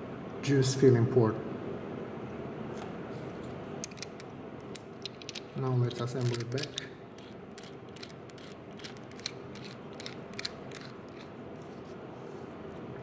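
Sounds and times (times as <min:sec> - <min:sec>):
metallic clicks and thread scrapes: 0:03.8 - 0:11.3.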